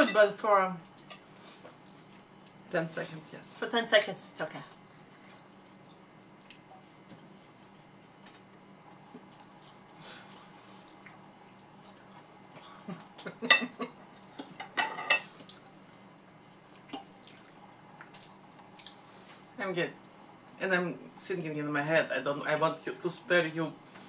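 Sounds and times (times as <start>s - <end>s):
cutlery clinking on plates: 14.4s - 15.3s.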